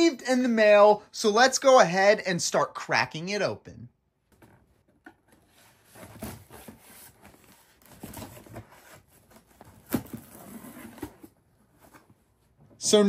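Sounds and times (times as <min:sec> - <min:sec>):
cardboard box rustling and tearing: 0:05.7 - 0:12.0.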